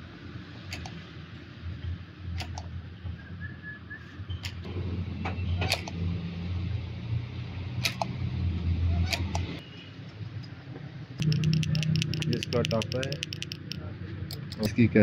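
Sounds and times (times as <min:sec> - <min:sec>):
sharp metallic clicks and taps: 0:11.2 - 0:14.8.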